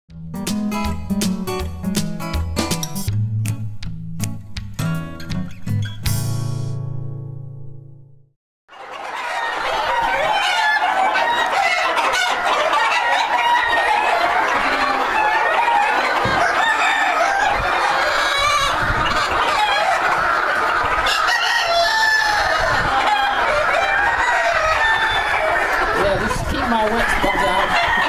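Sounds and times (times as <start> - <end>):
chickens clucking: 8.7 - 28.0.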